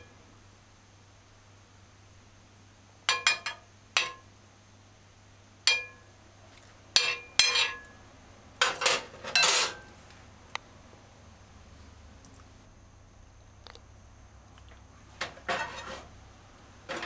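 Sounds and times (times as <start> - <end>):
metal utensil clinking on dishes: 7.0 - 7.9, 8.6 - 9.8.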